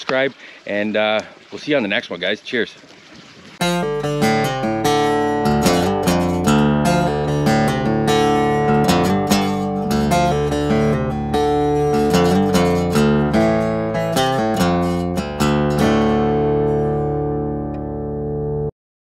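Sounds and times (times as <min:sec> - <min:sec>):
acoustic guitar strumming: 0:03.6 - 0:18.7.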